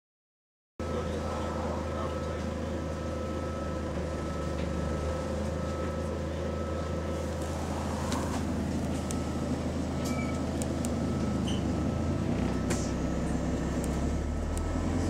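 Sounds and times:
bus engine idling: 0:00.8 - 0:15.0.

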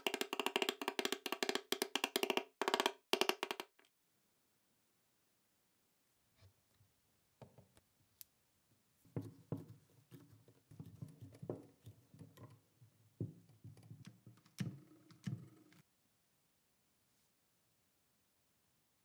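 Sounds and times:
hard objects knocking and clicking: 0:00.0 - 0:03.9, 0:09.1 - 0:15.7.

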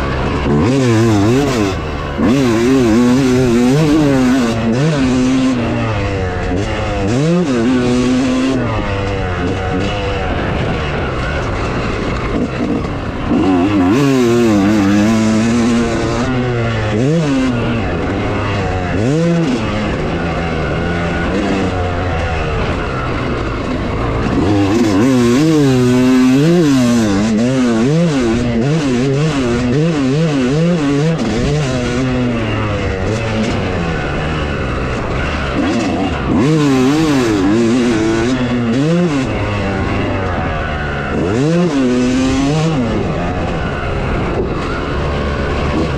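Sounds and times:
dirt bike engine revving: 0:00.0 - 0:45.9.

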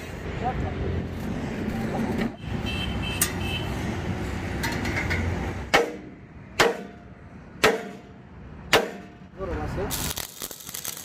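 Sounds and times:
sledgehammer striking steel: 0:05.7 - 0:09.2.

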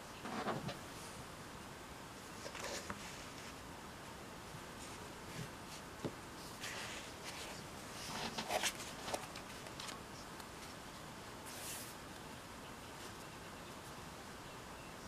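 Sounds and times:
paper rustling: 0:06.5 - 0:10.8.

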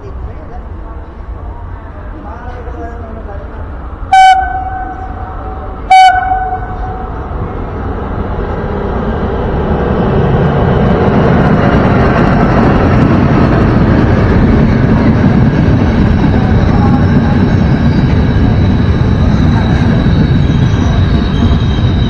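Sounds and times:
passing train rumble: 0:00.0 - 0:22.0
train horn blast: 0:04.1 - 0:07.2.

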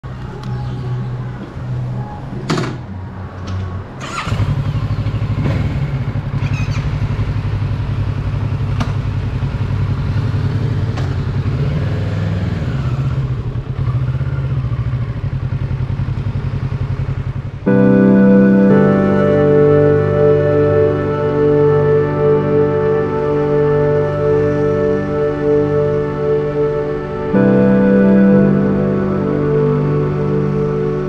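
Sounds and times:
motorcycle engine running: 0:04.0 - 0:17.7.

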